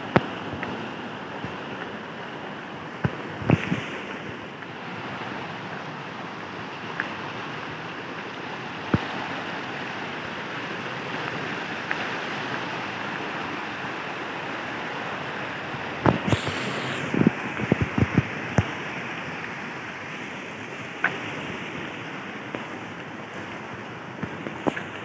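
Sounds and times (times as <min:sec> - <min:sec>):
stream running over stones: 0:00.0 - 0:25.0.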